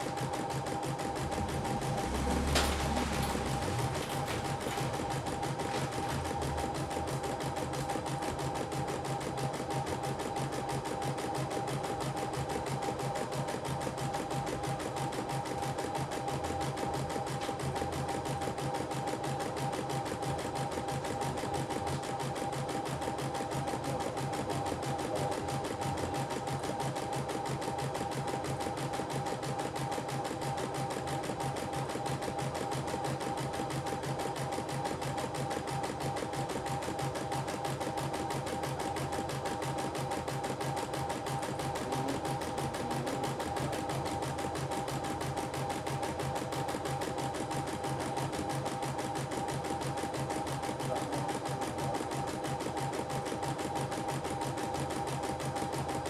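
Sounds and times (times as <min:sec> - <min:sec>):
motor hum: 0:00.0 - 0:08.4.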